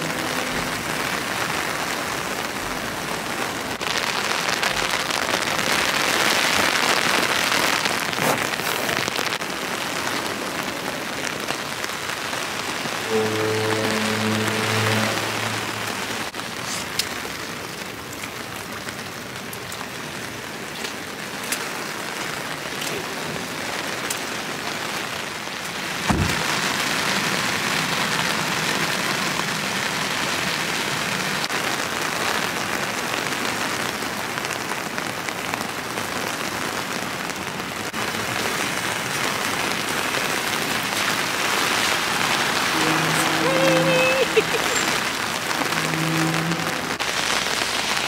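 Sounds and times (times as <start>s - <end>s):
heavy rain falling: 0.0s - 48.0s
thump: 26.1s - 26.4s.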